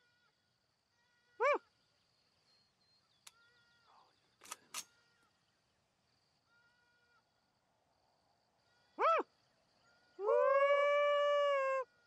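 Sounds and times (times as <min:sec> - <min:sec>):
sharp clicks: 0:04.4 - 0:04.9.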